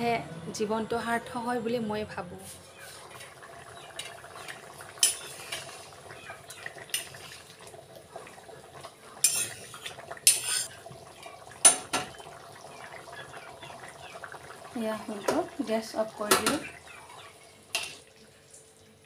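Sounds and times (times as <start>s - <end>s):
metal spatula scraping a pan: 5.0s - 5.9s, 9.2s - 10.7s.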